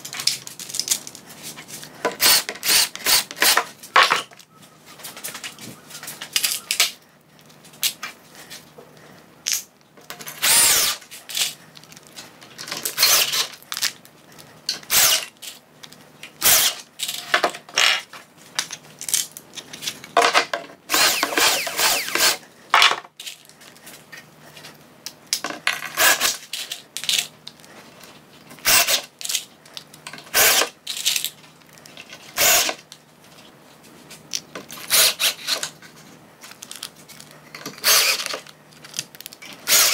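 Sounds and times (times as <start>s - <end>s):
cordless drill boring: 2.2s - 3.6s, 10.4s - 11.0s, 13.0s - 13.5s, 14.9s - 15.3s, 16.4s - 16.8s, 20.9s - 22.4s, 28.6s - 29.0s, 30.3s - 30.7s, 32.4s - 32.8s, 34.9s - 35.6s, 37.8s - 38.4s, 39.7s - 39.9s.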